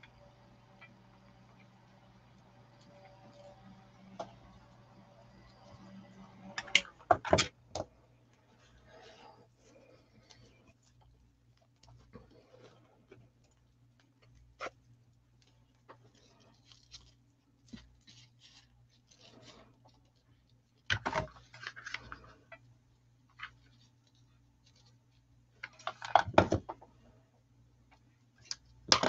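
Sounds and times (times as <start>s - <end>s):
faint steady hum: 0.0s - 29.0s
ribbon crinkling and rustling: 8.4s - 22.3s, 23.2s - 26.1s.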